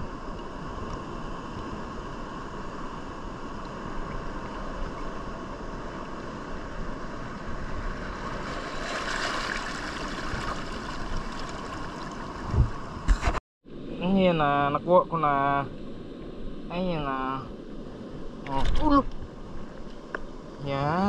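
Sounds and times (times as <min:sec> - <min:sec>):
wind on microphone: 0:00.0 - 0:13.4
shallow seawater rushing: 0:01.4 - 0:13.1.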